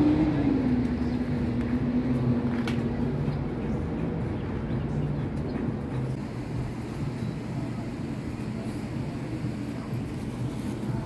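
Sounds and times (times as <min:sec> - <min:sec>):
passing vehicle engine drone: 0:00.0 - 0:06.2.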